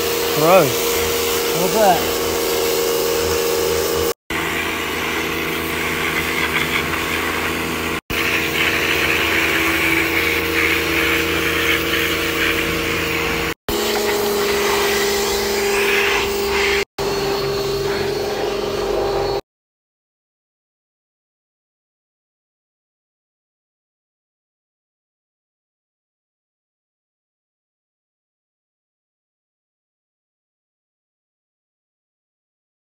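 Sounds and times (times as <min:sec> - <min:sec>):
water jet spraying: 0:00.0 - 0:16.9
pressure washer humming: 0:00.0 - 0:19.4.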